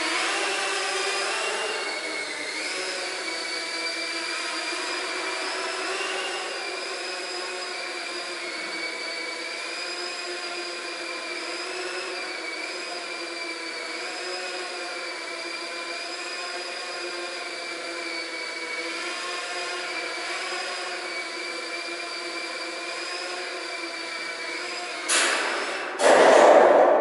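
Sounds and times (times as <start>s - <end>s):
drone propellers whining: 0.0s - 27.0s
sudden loud noise: 26.0s - 27.0s.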